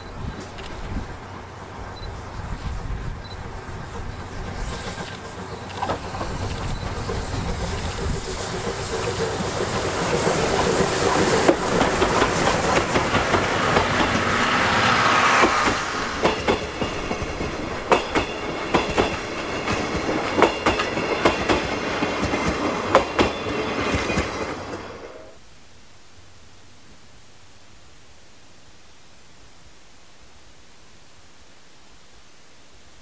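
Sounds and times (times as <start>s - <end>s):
train wheels clicking over rail joints: 0.0s - 25.0s
steam locomotive passing: 0.0s - 25.4s.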